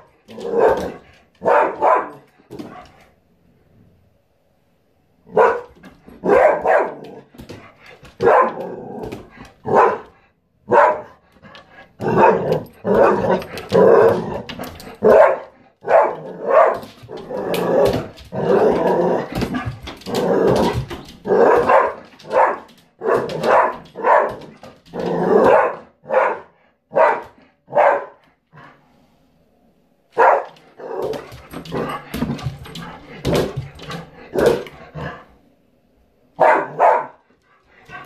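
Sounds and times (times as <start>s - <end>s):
dog barking loudly: 0.0s - 2.3s, 5.3s - 7.3s, 8.2s - 8.8s, 9.6s - 11.2s, 15.0s - 16.9s, 21.3s - 24.5s, 25.4s - 28.2s, 30.2s - 31.2s, 36.4s - 37.2s.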